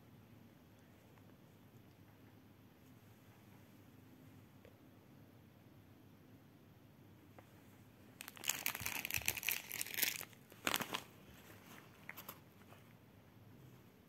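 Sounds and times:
plastic bag crinkling: 8.2 - 12.4.

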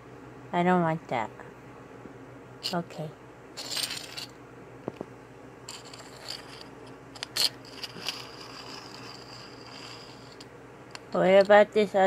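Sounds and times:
plastic toy figures rubbing and scraping: 5.7 - 10.5.

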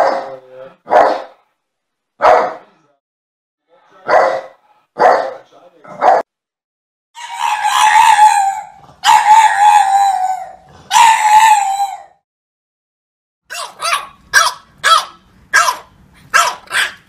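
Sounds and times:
dog barking: 0.0 - 1.4, 2.2 - 2.7, 4.0 - 6.3, 9.0 - 9.7, 13.5 - 17.0
dog howling: 7.2 - 12.2.

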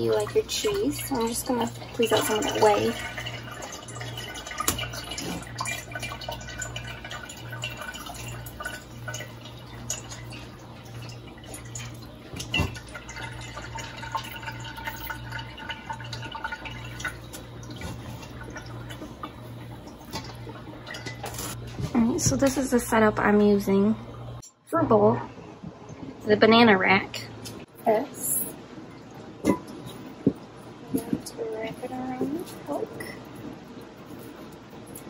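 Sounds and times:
liquid dripping into metal pot: 0.0 - 21.4
steady low hum: 0.0 - 35.0.

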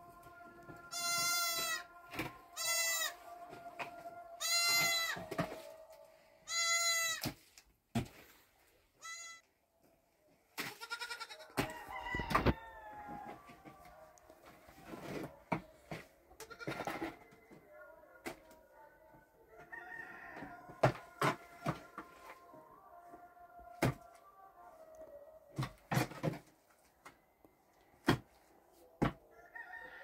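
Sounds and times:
goats bleating: 0.9 - 1.9, 2.5 - 3.2, 4.4 - 5.3, 6.5 - 7.2, 10.7 - 11.6, 16.4 - 17.0.

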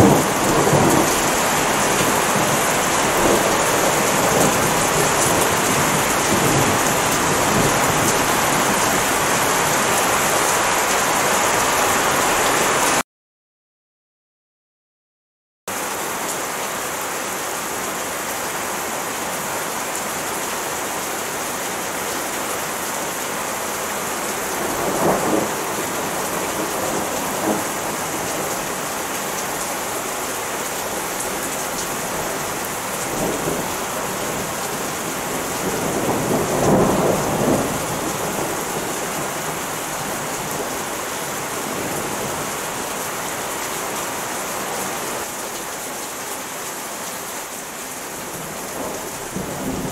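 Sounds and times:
thunder rumbling: 0.0 - 9.8, 32.7 - 39.6
heavy rain pouring: 0.0 - 13.0, 15.7 - 49.9.

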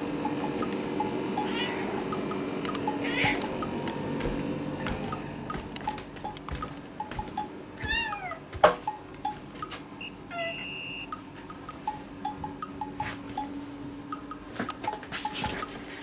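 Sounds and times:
cat meowing: 1.4 - 2.0, 3.0 - 3.5, 7.8 - 8.4, 10.3 - 11.0.

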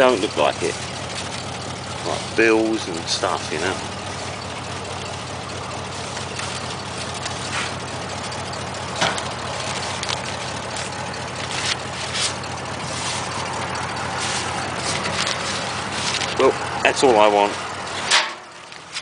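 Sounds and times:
car engine idling: 0.0 - 19.0
knocks and rustles of mail: 8.9 - 16.4.

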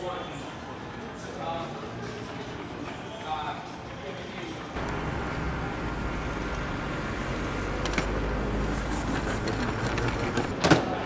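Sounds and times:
case wheels rumbling on tiles: 4.8 - 10.5.

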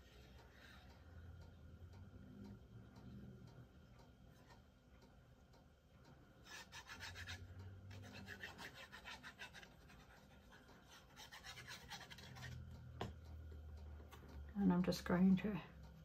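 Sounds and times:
applicator tip rubbing on paper: 10.9 - 12.6.

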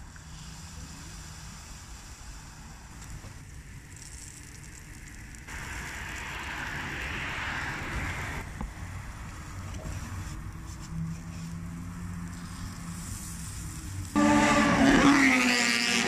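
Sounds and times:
food sizzling on a griddle: 0.5 - 7.8, 11.9 - 15.3.

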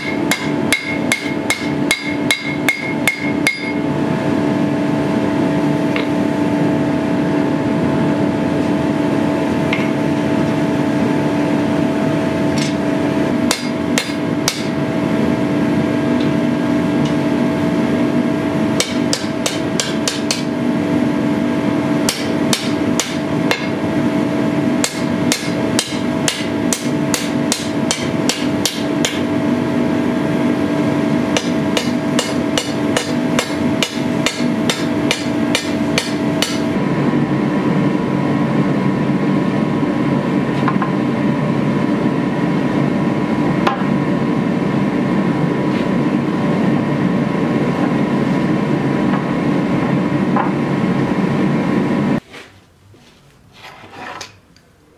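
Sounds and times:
hammer striking steel on anvil: 0.0 - 3.8, 13.4 - 14.8, 18.8 - 20.6, 22.0 - 23.8, 24.8 - 29.3, 31.3 - 36.7
steady hum: 0.0 - 54.9.

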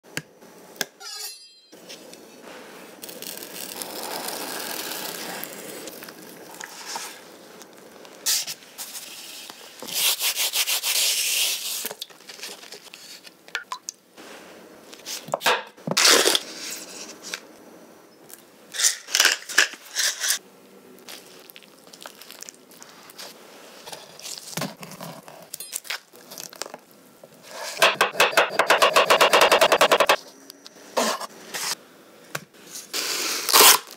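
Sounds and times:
avocado skin being peeled: 3.0 - 7.8.

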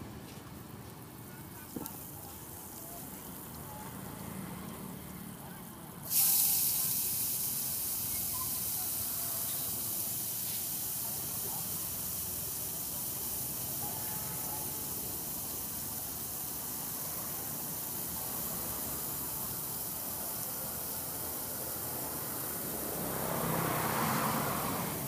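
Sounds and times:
noodles sizzling in a wok: 6.0 - 25.0.

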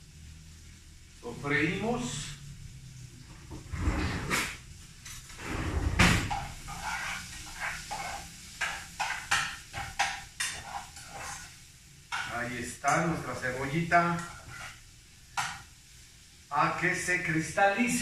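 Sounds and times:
spoon scraping a pot: 6.3 - 13.4, 14.2 - 14.8.

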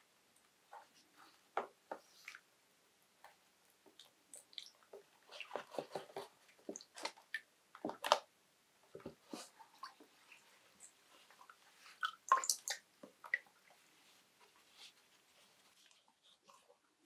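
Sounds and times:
wet cloth squelching in water: 3.8 - 8.3, 8.9 - 16.4.

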